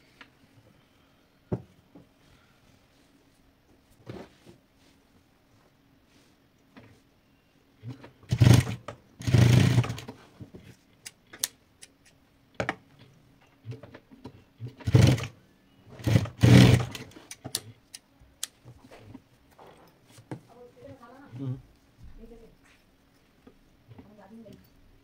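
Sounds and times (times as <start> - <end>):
faint motor hum: 0.0 - 25.0
sewing machine stitching: 8.3 - 10.1, 14.7 - 15.3, 15.9 - 17.2.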